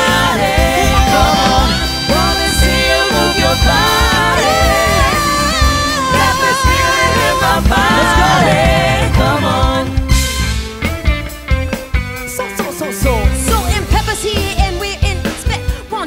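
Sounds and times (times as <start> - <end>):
person singing long sliding notes: 0.0 - 10.1
upbeat band music: 0.0 - 16.0.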